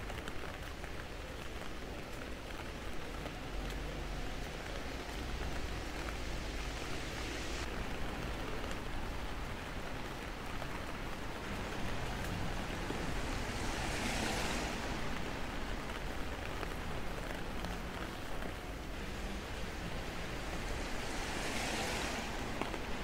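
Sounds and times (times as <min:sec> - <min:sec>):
car tyres hissing on wet road: 0:00.0 - 0:23.0
rain on wet pavement: 0:00.0 - 0:23.0.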